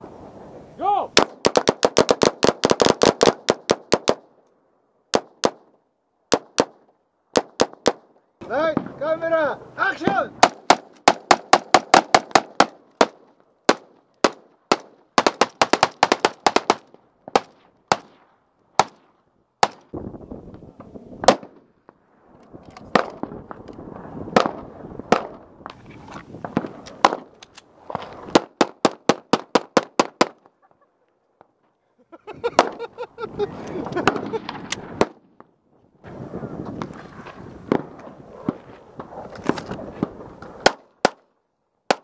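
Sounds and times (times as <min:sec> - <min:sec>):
gunshots: 0:01.2 - 0:04.2, 0:10.0 - 0:19.0, 0:21.2 - 0:21.6, 0:22.9 - 0:23.3.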